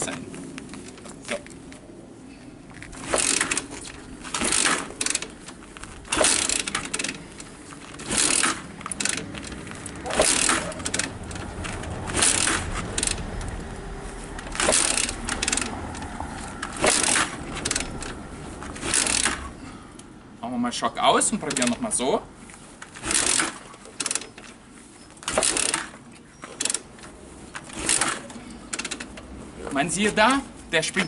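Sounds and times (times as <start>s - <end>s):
motorcycle kick-start clatter: 2.9s - 13.6s, 14.4s - 19.6s, 21.4s - 21.8s, 22.8s - 24.6s, 25.2s - 30.2s.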